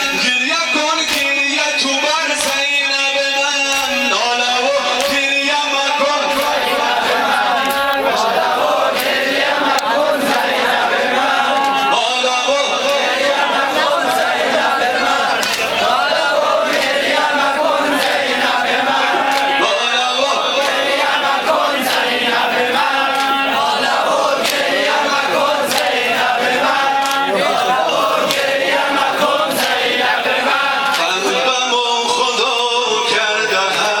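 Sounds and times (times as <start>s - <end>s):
male reciter leading chant: 0.0s - 34.0s
men chanting in unison: 0.0s - 34.0s
hands slapping bare chests: 1.1s - 1.4s, 6.3s - 6.8s, 15.4s - 16.0s, 24.3s - 24.9s, 25.5s - 27.3s, 28.2s - 29.9s.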